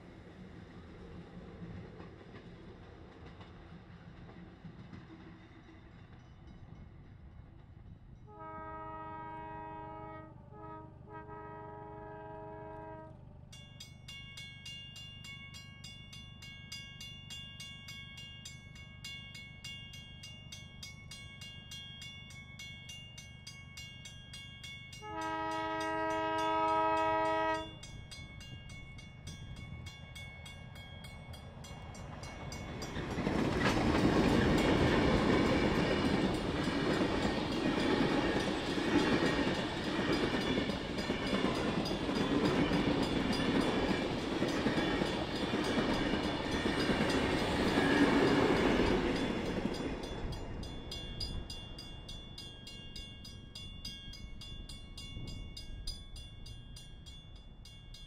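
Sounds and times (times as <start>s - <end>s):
train rumbling past on rails: 0.0s - 15.7s, 24.3s - 57.8s
locomotive horn blast: 8.3s - 13.2s, 25.0s - 27.8s.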